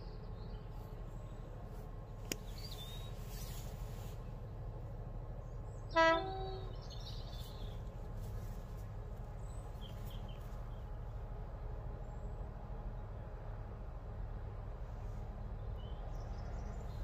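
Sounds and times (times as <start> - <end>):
low locomotive rumble: 0.0 - 17.0
locomotive two-tone horn: 5.9 - 6.8.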